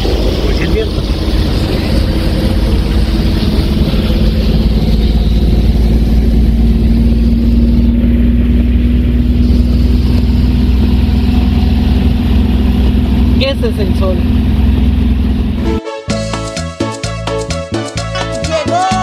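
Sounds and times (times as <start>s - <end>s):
car engine pulling: 0.0s - 15.8s.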